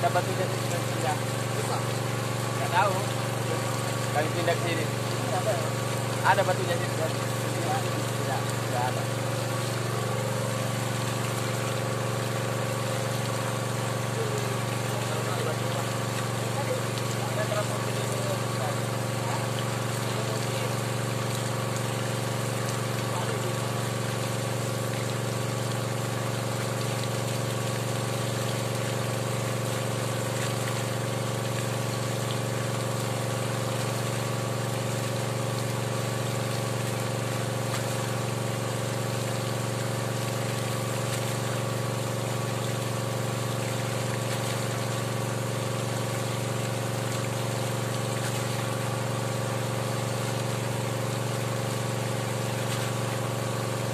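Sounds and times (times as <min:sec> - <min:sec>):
water pump engine running: 0:00.0 - 0:53.9.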